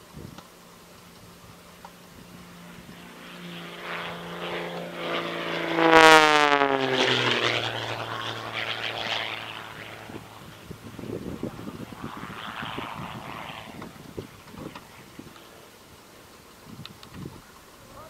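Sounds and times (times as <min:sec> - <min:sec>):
aircraft flying past: 0:00.5 - 0:16.4.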